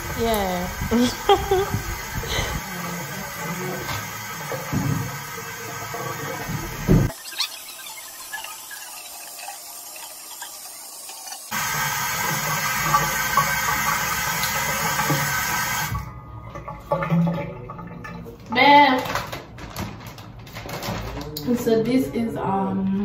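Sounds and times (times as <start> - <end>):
sink tap running: 0.0 - 16.1.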